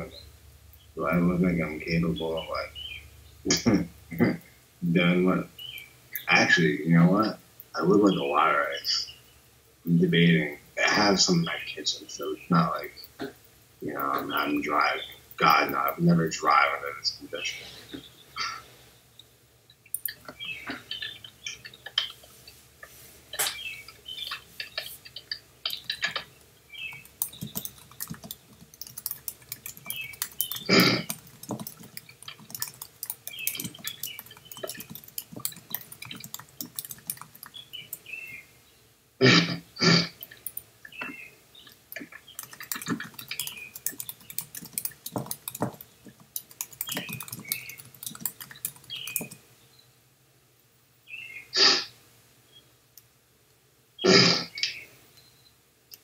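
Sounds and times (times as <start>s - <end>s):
typing on keyboard: 19.9s - 20.5s, 24.7s - 38.1s, 40.2s - 40.7s, 42.0s - 49.4s.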